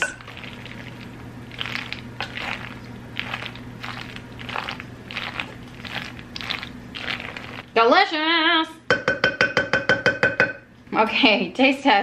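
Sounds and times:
spoon stirring wet pasta salad: 0:00.0 - 0:07.6.

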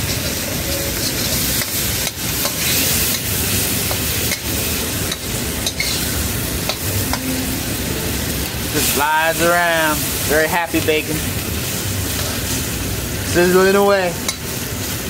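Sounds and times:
metal spatula stirring: 0:00.0 - 0:06.1
bacon sizzling in a wok: 0:00.0 - 0:15.0.

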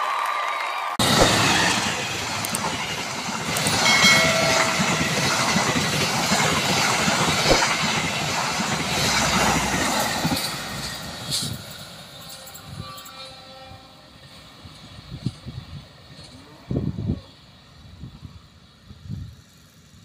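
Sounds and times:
wheels clacking over rail joints: 0:01.0 - 0:13.1
train rumbling past: 0:01.0 - 0:20.0.

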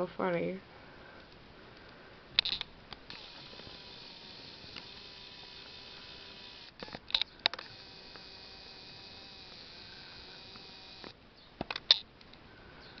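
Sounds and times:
camera clicks and taps: 0:02.4 - 0:04.0, 0:06.5 - 0:08.4, 0:09.1 - 0:12.0.

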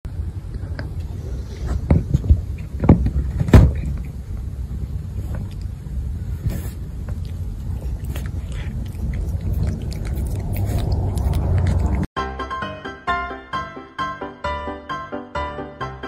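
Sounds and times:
low rumble: 0:00.1 - 0:12.1
cat licking wet clicks: 0:07.2 - 0:12.1.

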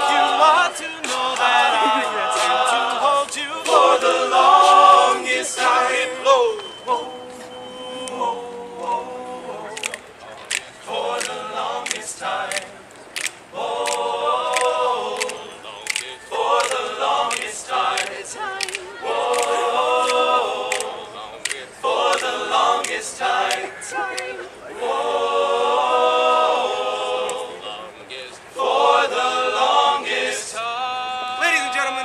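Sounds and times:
vocal percussive clicks: 0:00.0 - 0:04.0, 0:09.7 - 0:24.5
male a cappella chords: 0:00.0 - 0:32.0.

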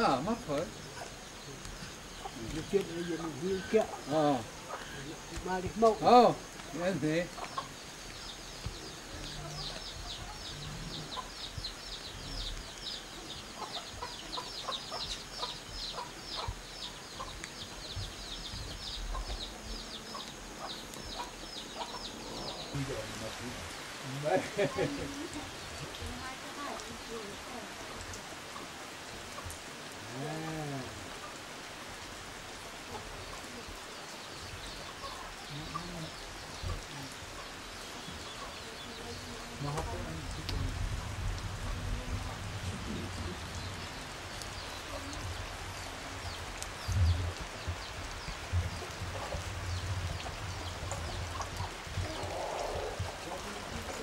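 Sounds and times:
chickens clucking: 0:00.0 - 0:11.7, 0:12.4 - 0:23.4, 0:34.6 - 0:40.4, 0:47.0 - 0:54.0
chicks peeping: 0:07.3 - 0:22.8, 0:46.8 - 0:53.9.

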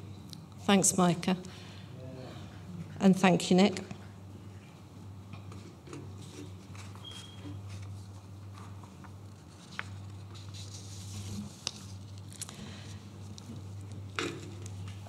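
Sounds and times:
papers rustling: 0:06.2 - 0:12.6.

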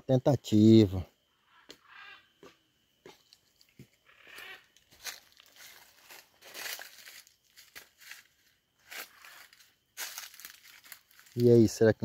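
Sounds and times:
footsteps on dry leaves: 0:04.3 - 0:11.7.

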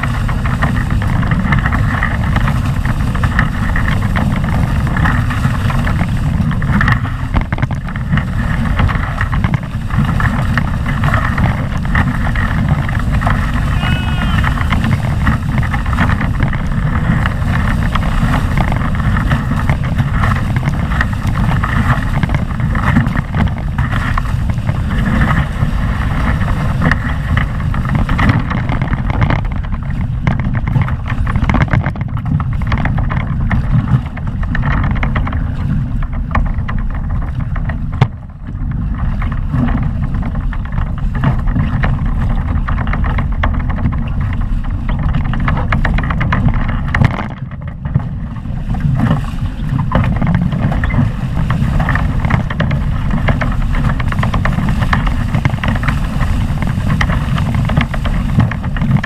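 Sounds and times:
knock on boat: 0:00.0 - 0:59.0
wind buffeting microphone: 0:00.0 - 0:59.0
water and spray rushing past: 0:08.3 - 0:28.2.

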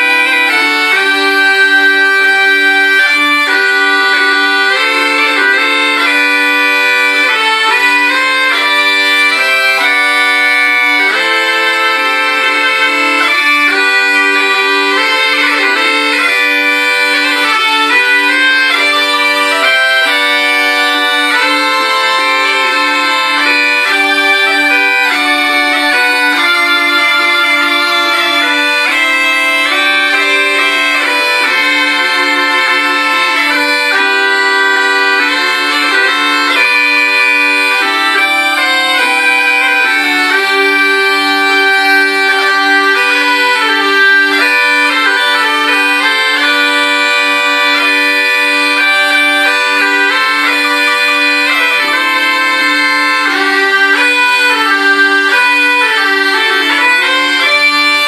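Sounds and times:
bagpipes playing a folk tune: 0:00.0 - 0:58.0.

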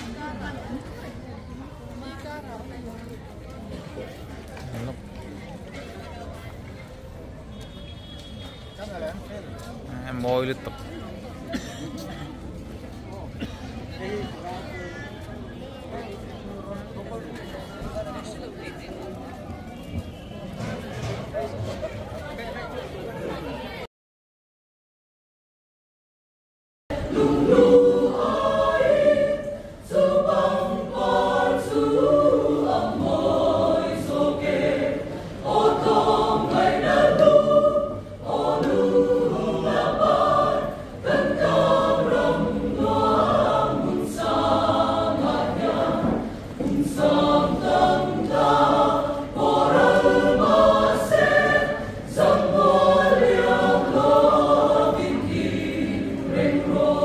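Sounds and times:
mixed choir singing: 0:26.9 - 0:57.0.

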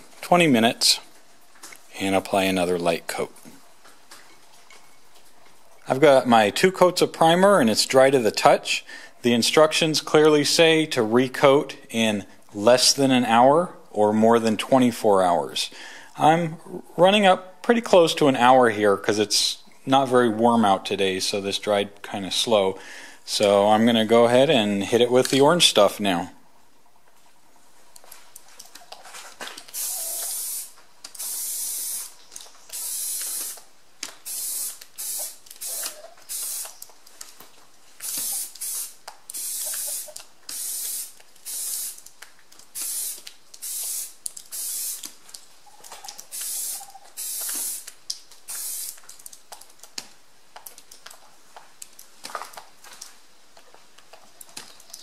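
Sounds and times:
aerosol can spraying bursts: 0:29.7 - 0:36.8, 0:38.0 - 0:42.0, 0:42.7 - 0:45.1, 0:46.3 - 0:49.0.

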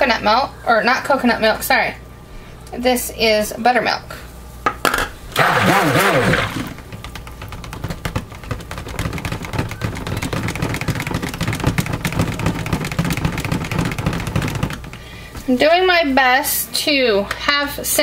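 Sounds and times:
stick blender whirring in liquid: 0:05.3 - 0:15.0.

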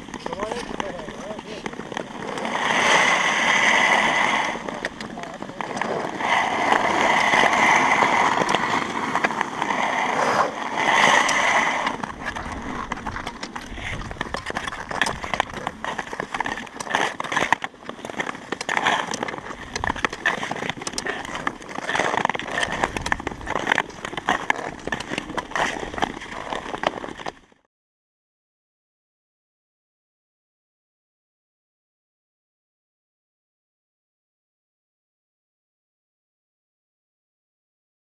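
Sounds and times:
pole tips clicking on ice: 0:00.0 - 0:27.4
skate blades scraping ice: 0:00.0 - 0:27.6.

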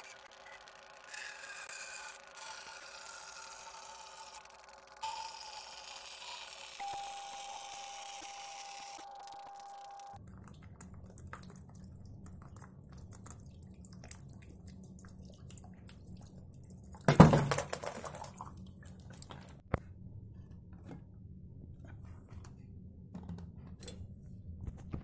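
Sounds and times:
water dripping into bottle: 0:10.2 - 0:19.5.

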